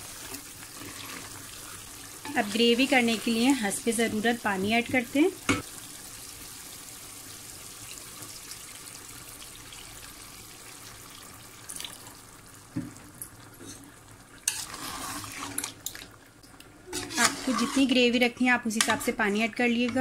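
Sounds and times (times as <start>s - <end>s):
water pouring into a pot: 0.0s - 3.4s, 5.6s - 12.6s, 14.4s - 16.2s
spoon stirring in a pot: 13.6s - 16.0s, 16.9s - 18.0s.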